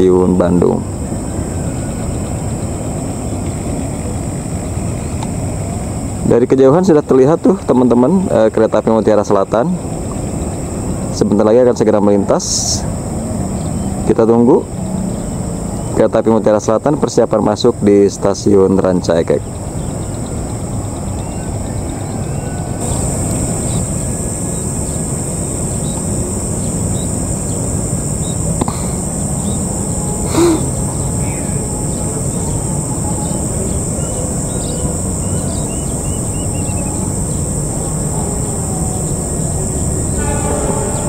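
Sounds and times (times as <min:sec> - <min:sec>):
high insect drone: 0:00.0 - 0:41.0
bird chirps: 0:19.3 - 0:41.0.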